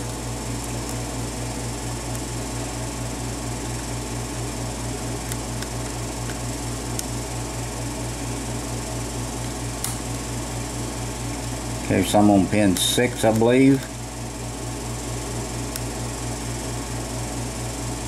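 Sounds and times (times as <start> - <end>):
pulsing low mechanical hum: 0.0 - 18.0.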